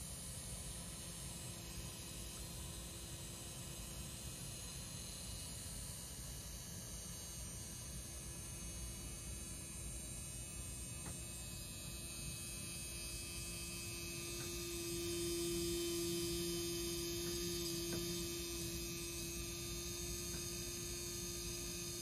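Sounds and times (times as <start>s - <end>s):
electric motor humming: 7.8s - 22.0s.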